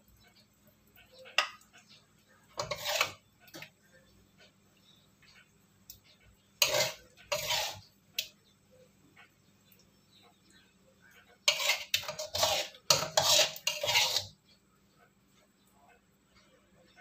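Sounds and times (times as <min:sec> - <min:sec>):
spatula scraping a wok: 0:01.0 - 0:03.7, 0:06.6 - 0:08.3, 0:11.4 - 0:14.6.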